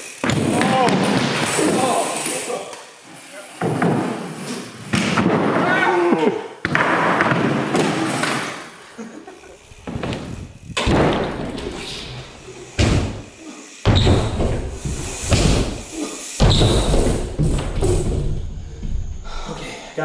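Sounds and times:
bike crashing onto wooden ramps: 3.6s - 5.9s, 9.6s - 13.3s, 13.9s - 19.1s
tyres rolling and scraping on plywood: 9.6s - 13.1s.

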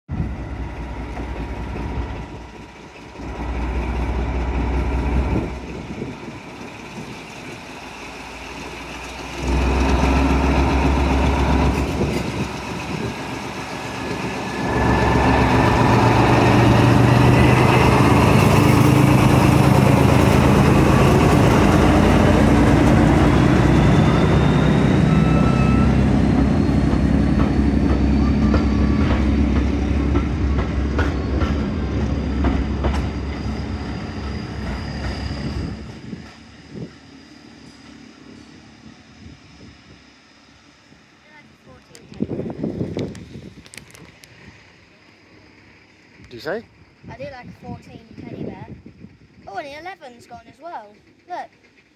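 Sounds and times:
diesel locomotive engine droning: 0.1s - 51.9s
high whine rising in pitch: 9.4s - 41.0s.

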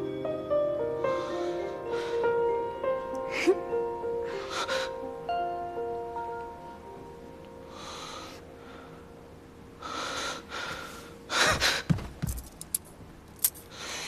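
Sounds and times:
person breathing hard: 9.8s - 12.0s.

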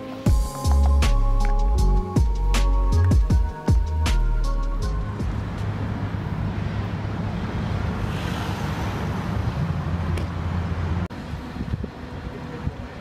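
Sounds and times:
quiet outdoor background: 0.0s - 13.0s
car driving past: 5.1s - 11.1s
wind rumble on microphone: 11.1s - 13.0s.

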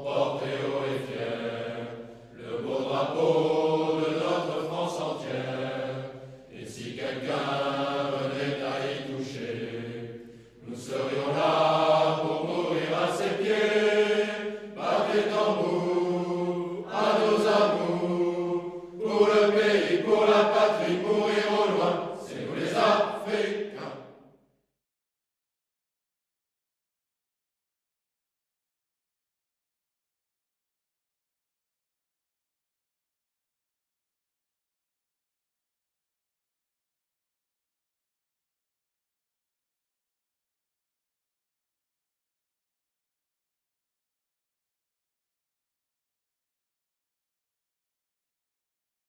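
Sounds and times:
choir singing a slow chant: 0.0s - 24.2s.

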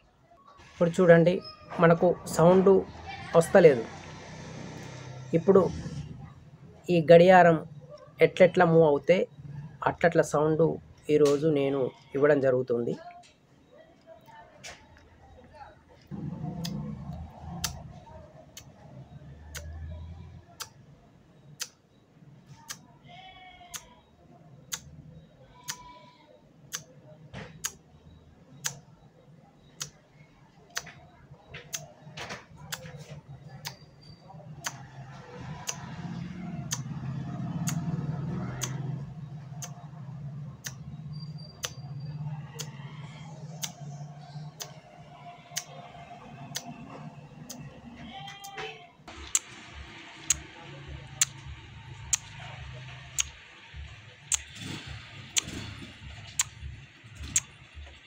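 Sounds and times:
mouth clicks mimicking clock: 16.1s - 20.8s, 21.4s - 21.9s, 22.6s - 22.9s, 23.6s - 26.0s, 26.6s - 29.0s, 29.6s - 30.0s, 30.7s - 31.0s, 31.6s - 47.8s, 48.4s - 58.0s.

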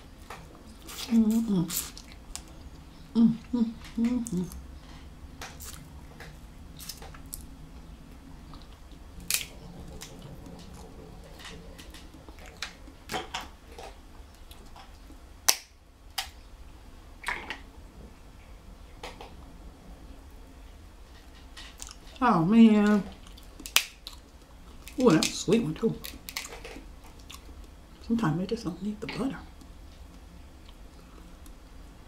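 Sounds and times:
soft eating sounds: 0.0s - 15.3s, 16.2s - 32.0s
crab shells cracking by hand: 15.5s - 16.4s, 23.2s - 25.4s, 26.0s - 27.4s.

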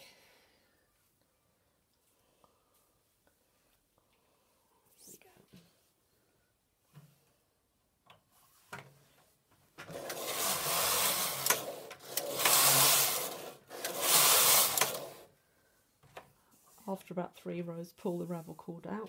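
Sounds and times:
knitting machine carriage rasping: 9.8s - 15.3s.

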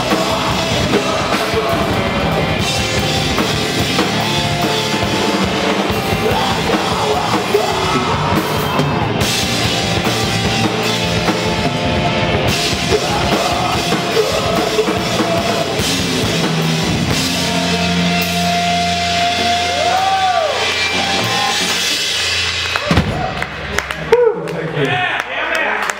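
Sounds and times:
live rock band playing: 0.0s - 24.0s
shouted vocals: 5.9s - 9.3s, 18.8s - 21.8s.

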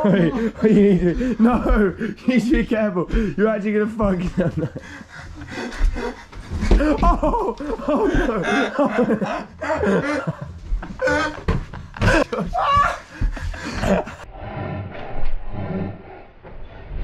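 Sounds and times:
men yelling and laughing: 0.0s - 4.9s, 6.7s - 14.3s.

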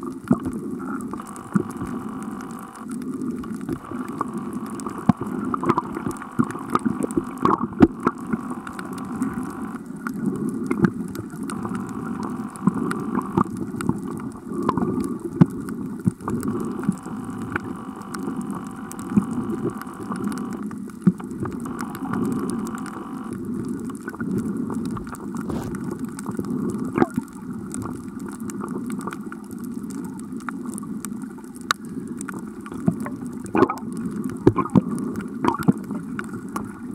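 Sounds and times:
steady hum: 1.0s - 15.3s, 16.1s - 20.8s, 21.4s - 23.7s, 24.4s - 26.1s
sharp clicks: 1.1s - 9.9s, 11.4s - 14.8s, 16.3s - 23.4s.

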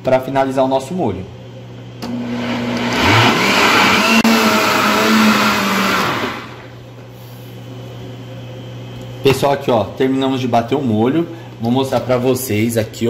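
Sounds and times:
blender running: 2.0s - 6.8s.

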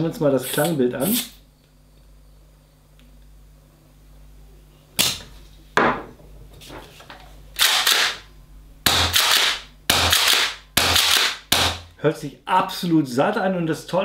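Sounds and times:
gas gun shots: 8.9s - 11.8s.

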